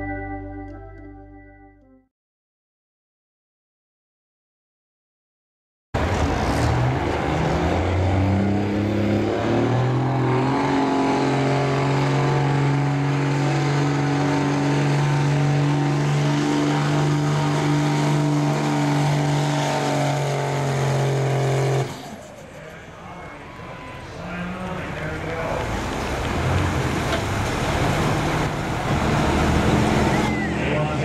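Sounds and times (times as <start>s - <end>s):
diesel engine revving at full load: 6.0s - 22.8s, 24.3s - 31.0s.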